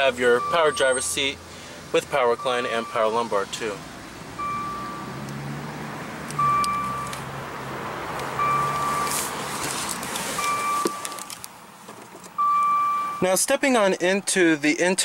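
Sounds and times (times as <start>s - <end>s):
car warning chime beeps: 0.0s - 1.4s, 2.1s - 3.7s, 4.4s - 5.2s, 6.3s - 7.2s, 8.4s - 9.3s, 10.4s - 11.4s, 12.4s - 13.4s.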